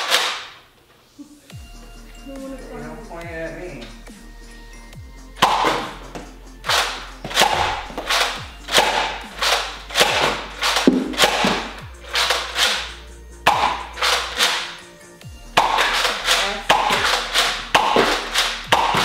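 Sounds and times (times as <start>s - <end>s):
toy blaster pumped and fired: 0.0s - 0.6s, 6.6s - 14.7s, 15.6s - 19.0s.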